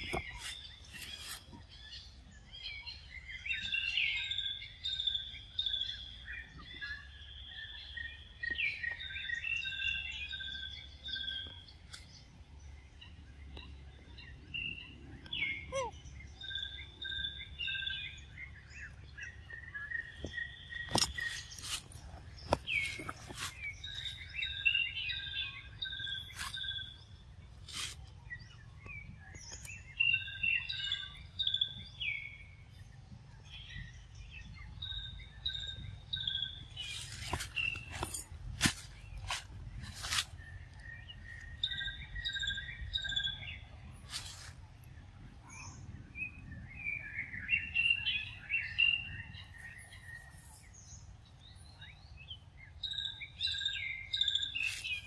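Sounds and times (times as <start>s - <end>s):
birds chirping and whistling: 0.0s - 44.6s, 45.2s - 55.0s.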